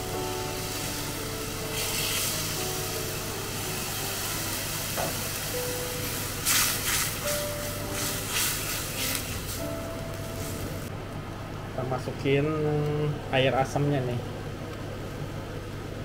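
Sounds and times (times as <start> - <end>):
liquid sizzling in a hot pan: 0.0 - 10.9
soft background music: 0.0 - 14.4.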